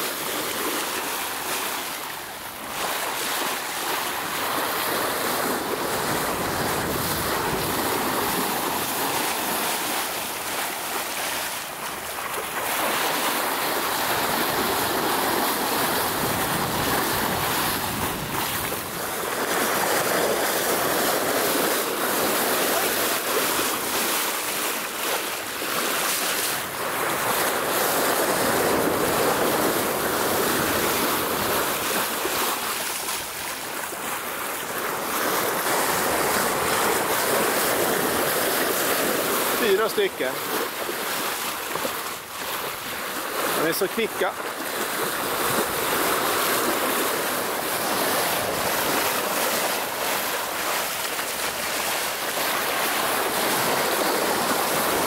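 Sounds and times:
water rushing along a hull: 0.0s - 55.0s
wind buffeting microphone: 5.3s - 9.6s, 13.8s - 21.6s.

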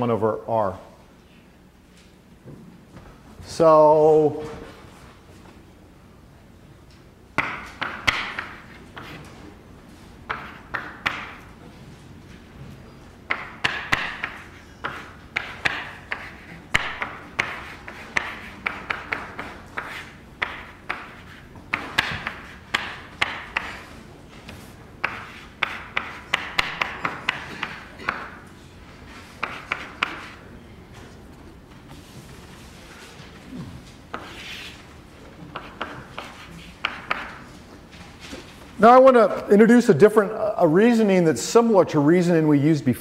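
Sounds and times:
chalk tapping on blackboard: 7.4s - 9.3s, 10.3s - 11.4s, 13.3s - 23.9s, 25.0s - 28.4s, 29.4s - 30.4s, 34.1s - 34.8s, 35.5s - 37.4s
chalk scratching on blackboard: 13.9s - 24.0s, 25.0s - 27.8s, 29.2s - 30.4s, 34.1s - 34.8s, 35.5s - 37.4s.

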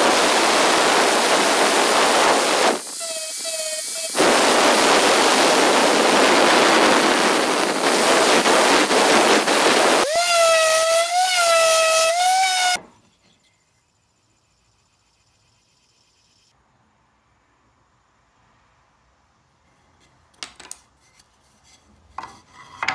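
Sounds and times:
angle grinder motor whine: 0.0s - 12.8s
abrasive disc grinding wood: 1.0s - 12.8s.

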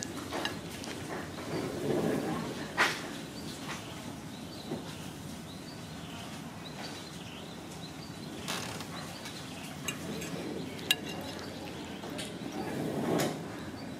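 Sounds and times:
low background murmur: 6.1s - 13.9s
fork clinking on plate: 9.8s - 11.8s.

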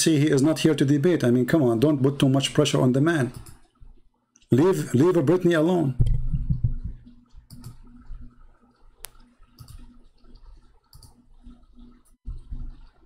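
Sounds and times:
faint low hum: 0.6s - 13.0s.

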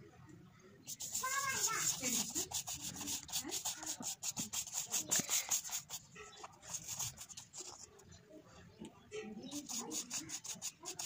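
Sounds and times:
sponge brush scrubbing paper: 0.9s - 8.0s, 9.5s - 11.0s.

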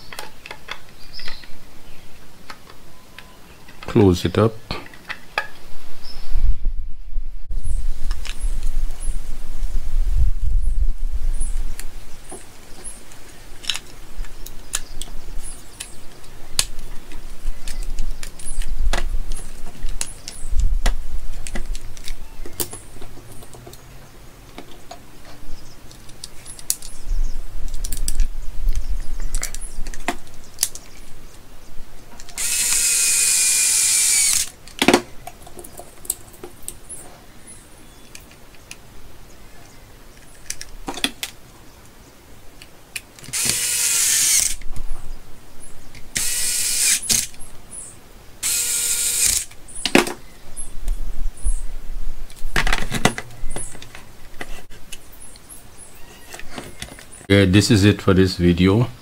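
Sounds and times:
cordless screwdriver whining: 32.4s - 34.5s, 43.3s - 44.6s, 46.2s - 47.4s, 48.4s - 49.6s.

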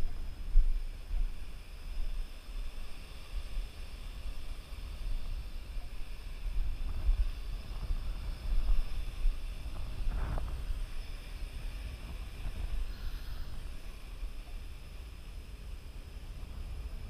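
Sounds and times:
drone motors whining: 0.0s - 17.0s
wind on microphone: 0.0s - 17.0s.

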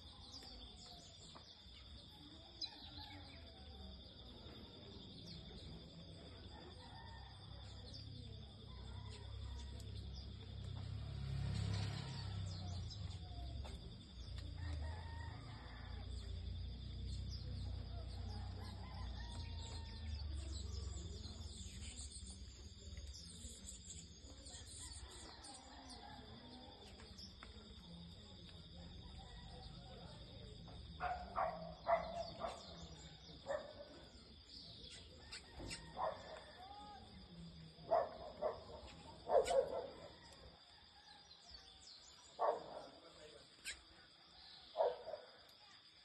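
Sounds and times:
birds chirping: 31.0s - 36.5s, 37.9s - 40.2s.

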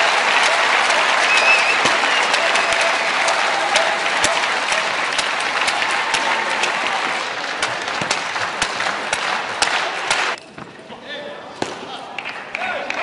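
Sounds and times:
sharp single claps: 0.0s - 10.4s
spectators applauding: 0.0s - 10.4s, 12.0s - 13.0s.

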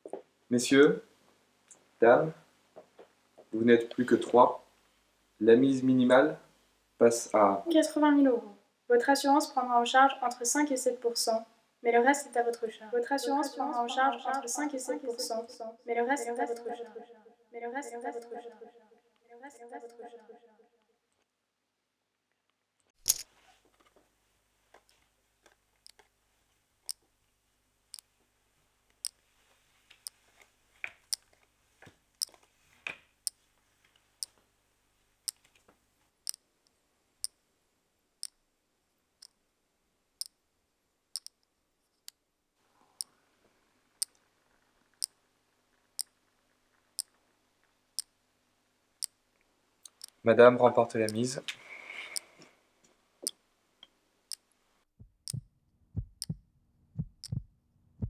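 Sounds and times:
irregular clicks: 24.8s - 26.1s, 41.2s - 42.2s, 49.8s - 50.2s, 51.0s - 52.3s, 55.2s - 55.4s, 57.2s - 57.4s
wall clock ticking: 49.8s - 50.2s, 51.0s - 51.4s, 55.1s - 55.4s, 56.0s - 56.4s, 57.0s - 57.4s.

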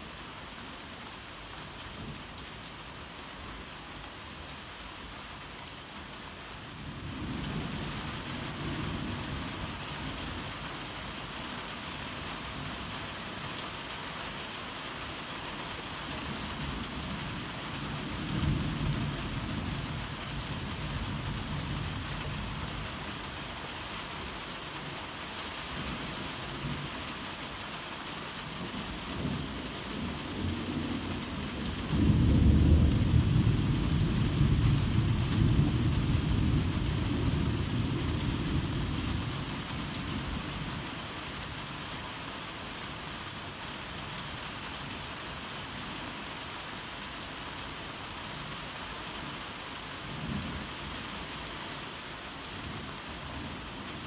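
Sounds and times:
heavy rain falling: 0.0s - 54.0s
rolling thunder: 31.8s - 38.7s.

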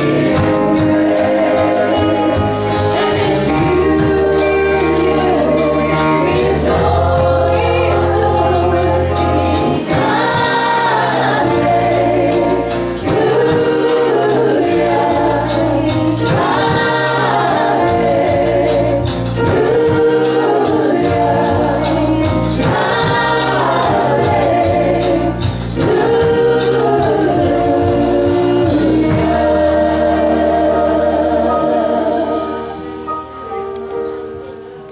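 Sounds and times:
choir singing worship song: 0.0s - 34.8s
band with drum kit: 0.0s - 34.9s.

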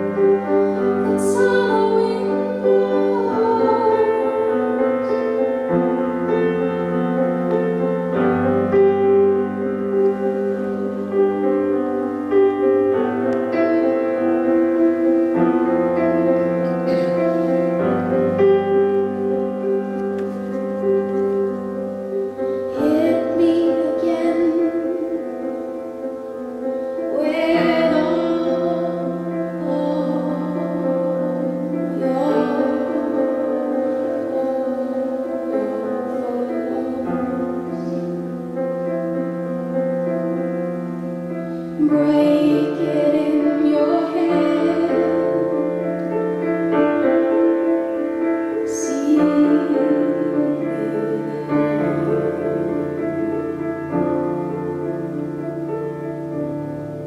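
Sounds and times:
woman singing: 0.0s - 6.0s, 9.6s - 12.8s, 22.7s - 26.2s, 27.0s - 38.3s, 41.7s - 53.1s.

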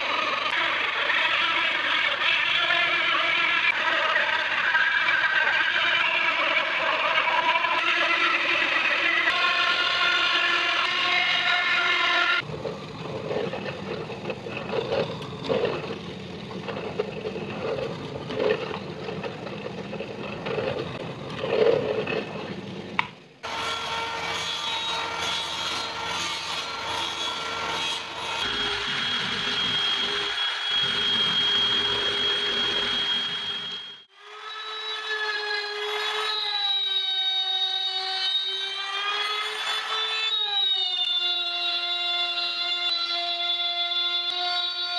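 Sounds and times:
cordless drill sanding drum whine: 28.0s - 44.9s.

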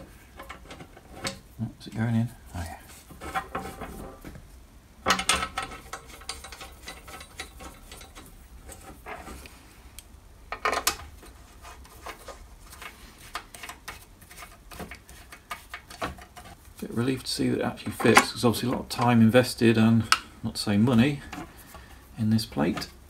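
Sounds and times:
metal clatters: 5.0s - 9.4s.

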